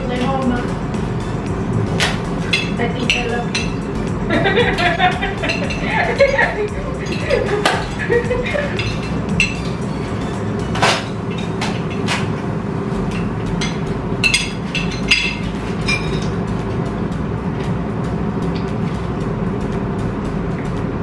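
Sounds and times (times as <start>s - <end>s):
electronic dance music: 0.0s - 11.0s.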